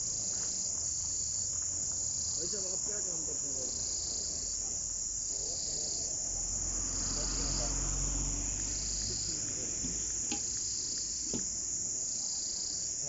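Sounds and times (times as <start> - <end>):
insects chirring: 0.0 - 13.0
faint knocks: 11.2 - 11.6.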